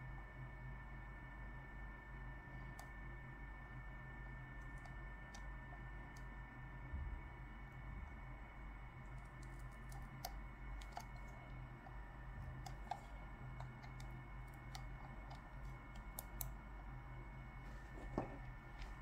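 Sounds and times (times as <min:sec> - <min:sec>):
low electrical hum: 0:00.0 - 0:19.0
computer mouse clicks and taps: 0:09.1 - 0:16.6.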